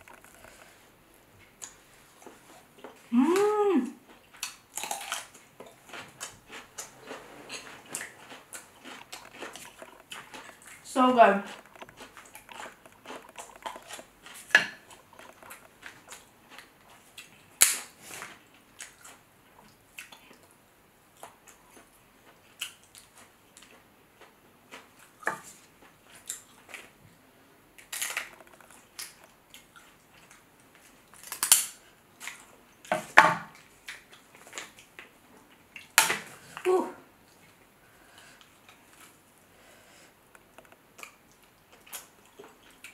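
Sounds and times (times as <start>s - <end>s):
wet chewing and smacking: 4.0s - 27.0s, 27.8s - 36.0s, 40.3s - 42.9s
shells cracking and snapping: 27.8s - 29.4s, 31.1s - 31.8s.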